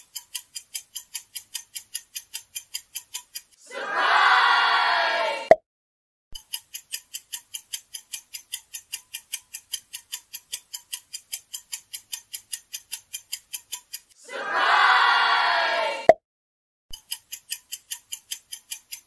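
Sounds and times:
rapid clock-like ticks: 0:00.0 - 0:03.6, 0:06.4 - 0:14.2, 0:16.9 - 0:19.0.

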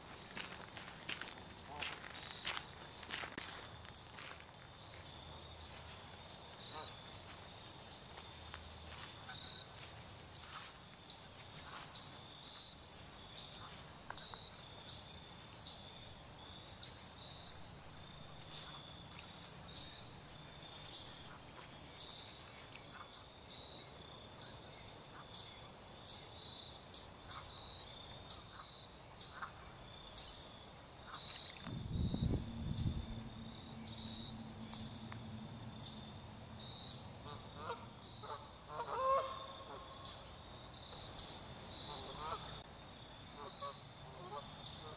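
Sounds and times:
low rumble: 0:31.7 - 0:36.7
geese honking: 0:37.2 - 0:39.9, 0:41.9 - 0:42.6.

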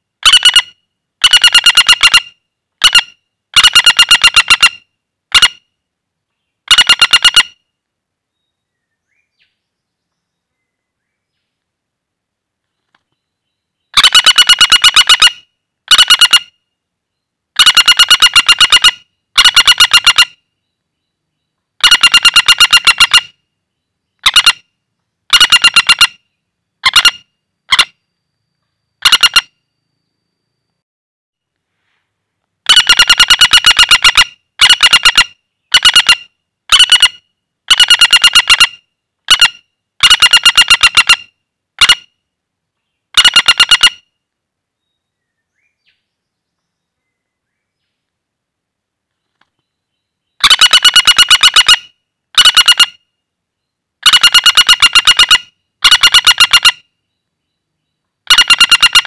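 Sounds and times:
woodpecker rattling calls: 0:00.2 - 0:05.7, 0:06.6 - 0:07.6, 0:13.8 - 0:16.6, 0:17.6 - 0:20.4, 0:21.8 - 0:23.4, 0:24.1 - 0:24.7, 0:25.3 - 0:28.0, 0:29.0 - 0:29.6, 0:32.6 - 0:42.2, 0:43.1 - 0:44.1, 0:50.2 - 0:53.0, 0:54.0 - 0:59.0.

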